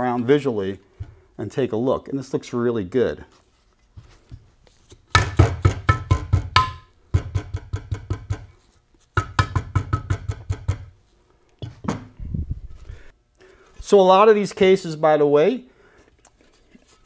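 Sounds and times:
rubber mallet tapping metal: 5.1 - 8.5, 9.2 - 10.9.

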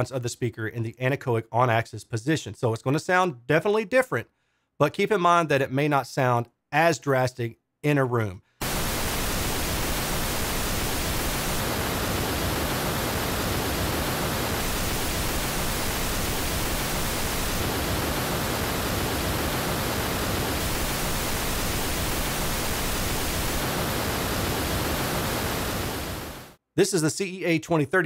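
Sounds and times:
pink noise hiss: 8.6 - 26.6.

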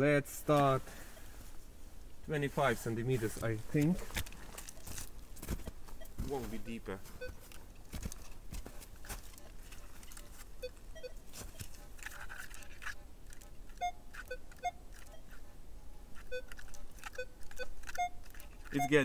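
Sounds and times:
footsteps on snow: 2.4 - 10.6, 11.2 - 12.4
metal detector beeps: 7.2 - 7.5, 10.2 - 11.7, 13.8 - 15.4, 16.2 - 19.0.

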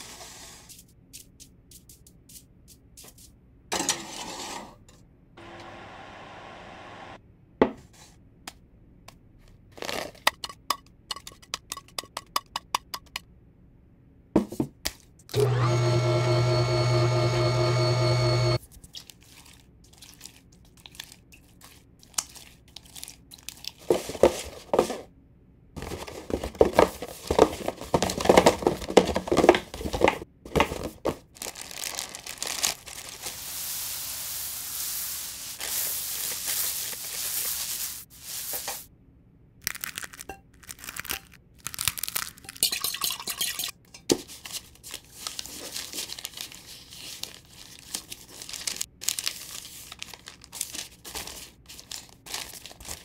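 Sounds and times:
hand squishing wet mixture: 18.6 - 24.3
parchment paper crinkling: 18.6 - 24.9, 25.8 - 38.9, 39.6 - 42.6, 44.2 - 53.0
breadcrumbs pouring: 31.4 - 38.8.

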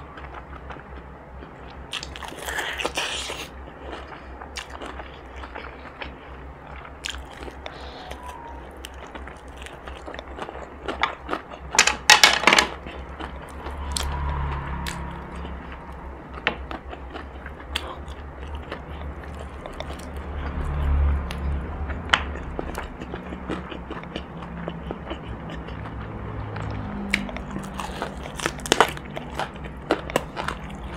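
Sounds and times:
crunchy chewing: 0.0 - 11.8, 12.7 - 30.9
steady low hum: 12.7 - 30.9.

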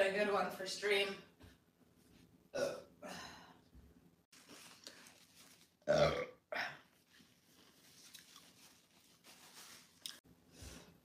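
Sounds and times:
woman burping: 2.6 - 3.2, 5.9 - 6.8.

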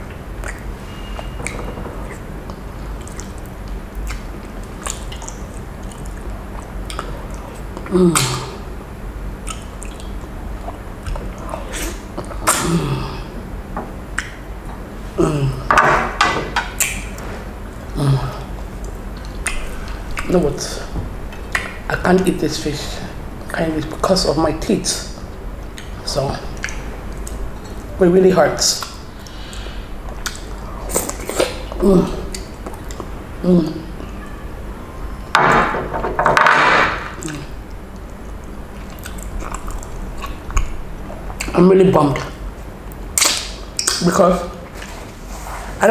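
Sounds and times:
person murmuring: 7.8 - 8.7, 11.6 - 13.4, 15.2 - 15.7, 17.9 - 18.6, 31.8 - 32.3, 33.4 - 34.0.

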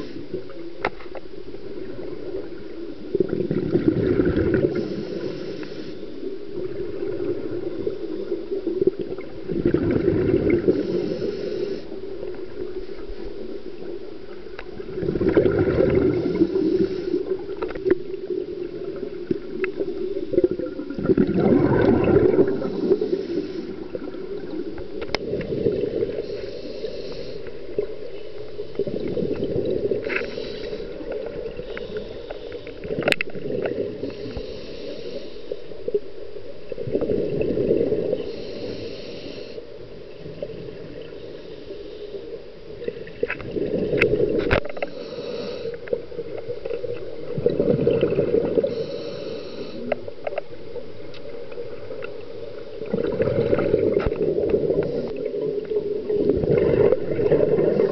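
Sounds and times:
regulator hiss on inhale: 0.0 - 3.2, 4.6 - 8.7, 10.4 - 14.6, 15.9 - 20.5, 22.2 - 36.6, 37.7 - 47.4, 48.2 - 52.8, 54.0 - 56.2
exhaled bubbles: 1.7 - 5.4, 6.6 - 11.6, 14.5 - 26.8, 28.7 - 34.4, 36.7 - 38.7, 42.8 - 50.0, 52.8 - 57.9.

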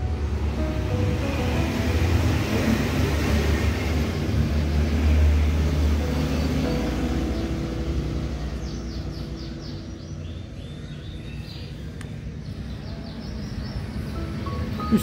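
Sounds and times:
small bird chirping: 8.4 - 15.0.

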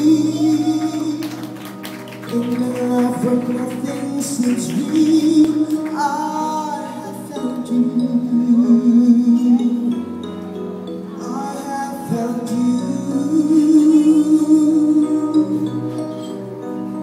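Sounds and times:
instrumental accompaniment: 0.0 - 17.0
person singing with vibrato: 0.0 - 17.0.

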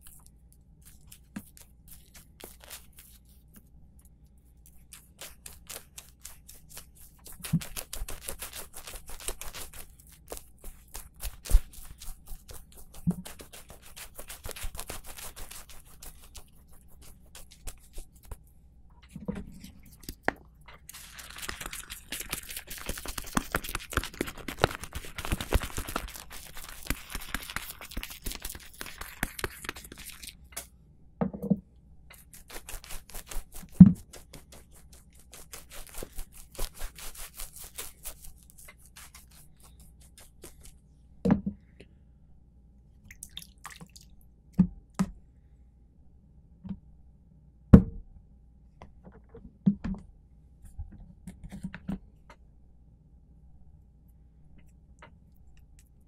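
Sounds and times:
shaving lather crackling in bowl: 0.0 - 18.5, 19.8 - 30.4, 32.2 - 40.8
razor scraping through hair: 4.8 - 18.4, 32.2 - 40.6.

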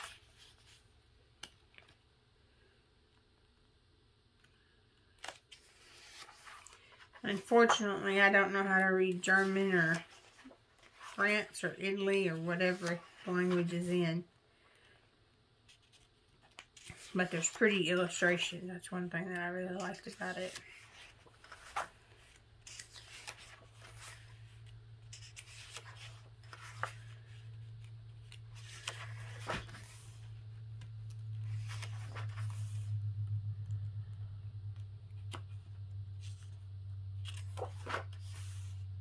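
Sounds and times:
paper pages rustling: 4.6 - 14.2, 15.6 - 18.5, 19.6 - 33.4, 35.1 - 39.0
steady low hum: 16.8 - 39.0.

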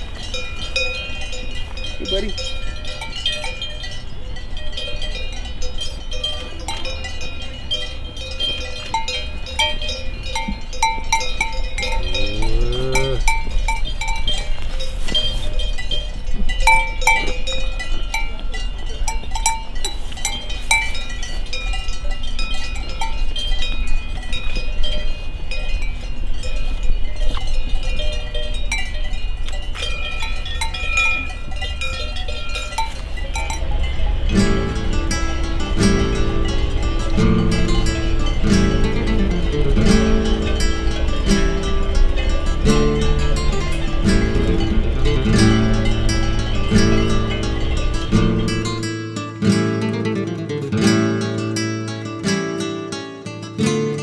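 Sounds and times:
cow calling: 0.0 - 3.4, 10.8 - 13.8, 32.7 - 48.8
cowbells clanking: 0.0 - 54.0.

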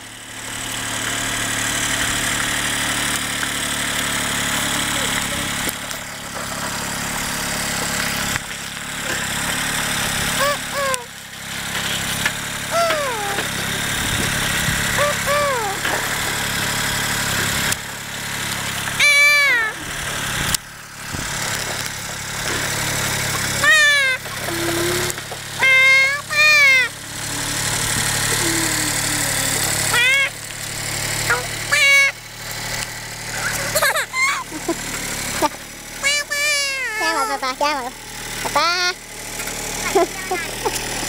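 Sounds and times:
tractor engine running: 0.0 - 41.0
child calling: 10.4 - 11.1, 12.7 - 13.8, 14.9 - 16.0, 19.0 - 20.0, 23.5 - 30.4, 31.2 - 32.2, 33.3 - 34.8, 35.4 - 39.0, 39.8 - 40.8.

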